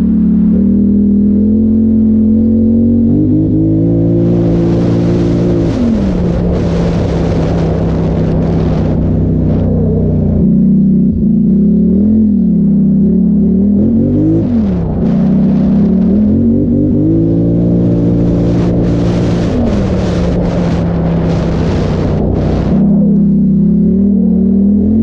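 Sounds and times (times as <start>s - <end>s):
atv engine running: 0.0s - 25.0s
rushing noise: 3.9s - 10.5s, 14.0s - 24.0s.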